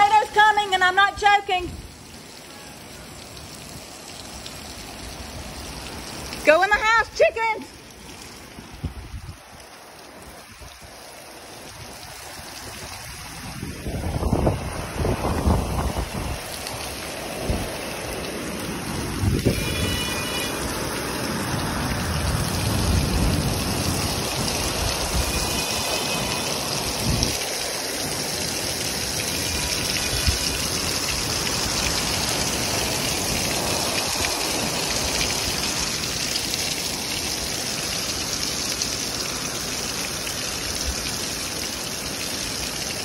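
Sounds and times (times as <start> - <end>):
torrential rain pouring: 0.0 - 43.0
gusting wind rumble: 11.7 - 19.9, 20.6 - 25.6.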